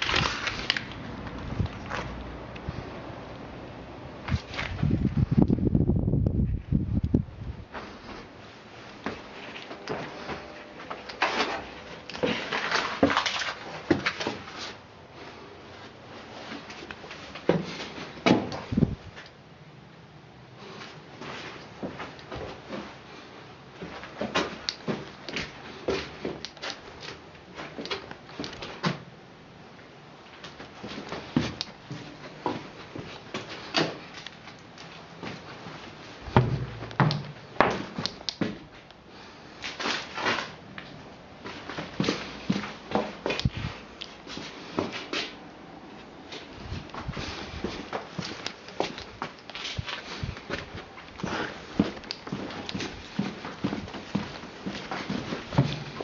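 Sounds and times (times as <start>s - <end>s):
dull thump: 36.3s - 37.8s
knocks and thuds: 36.3s - 37.9s.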